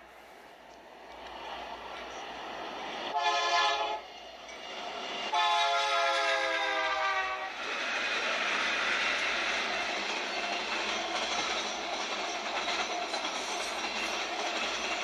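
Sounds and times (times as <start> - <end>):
freight train rumbling past: 0.0 - 15.0
locomotive air horn blasts: 3.1 - 4.0, 5.3 - 7.6.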